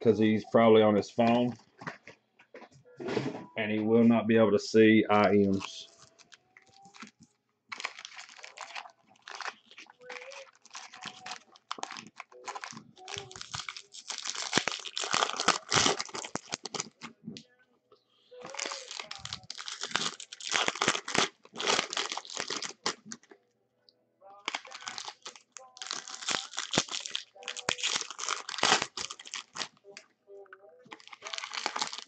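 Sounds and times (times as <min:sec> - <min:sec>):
foil wrappers crinkling: 0:05.2 - 0:17.1, 0:18.4 - 0:23.3, 0:24.4 - 0:30.0, 0:30.8 - 0:32.0
pack being torn open: 0:05.6 - 0:17.1, 0:18.4 - 0:23.3, 0:24.4 - 0:29.8, 0:30.9 - 0:32.0.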